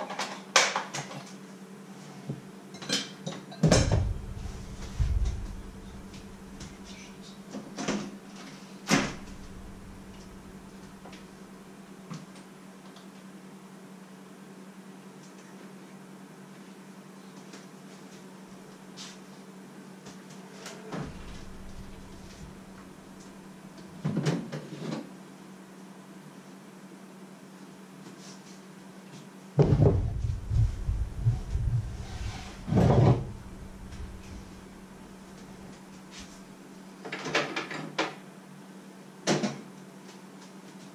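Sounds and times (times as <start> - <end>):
thuds on wooden worktop: 3.6 - 5.7, 29.6 - 32.0
steady low hum: 3.6 - 7.6, 8.3 - 12.1, 20.9 - 24.0, 29.6 - 36.7
window scraping: 3.8 - 6.9, 9.0 - 11.3, 21.0 - 23.4, 29.6 - 35.4.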